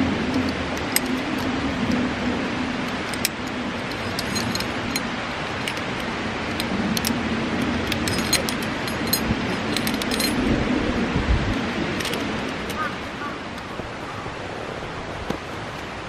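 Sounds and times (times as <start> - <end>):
metal climbing gear clinking: 0.0 - 2.0, 2.7 - 10.6, 11.8 - 13.8
steady background rush: 0.0 - 16.0.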